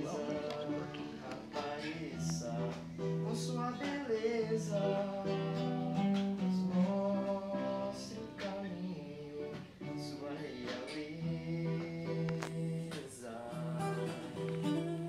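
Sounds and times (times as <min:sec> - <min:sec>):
two acoustic guitars playing: 0:00.0 - 0:15.0.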